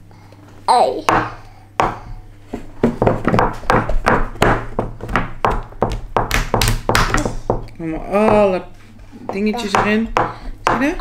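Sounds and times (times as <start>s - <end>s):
metal spoon knocking on wood: 9.3s - 11.0s.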